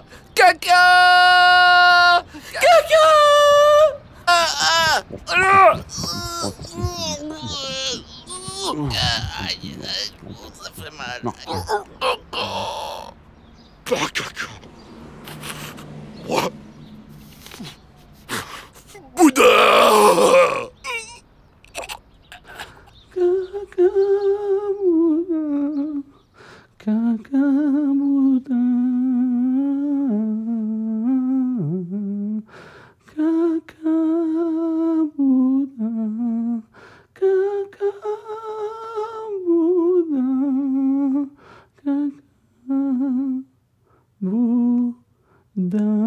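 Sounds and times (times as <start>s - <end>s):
person humming a slow melody: 3.3s - 9.7s, 26.8s - 32.5s.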